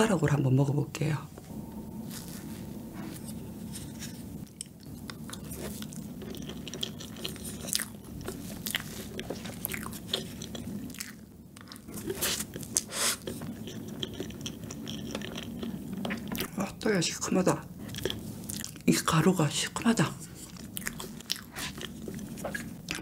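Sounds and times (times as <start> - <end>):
wet mouth clicks and chewing: 4.4 - 16.5, 20.4 - 23.0.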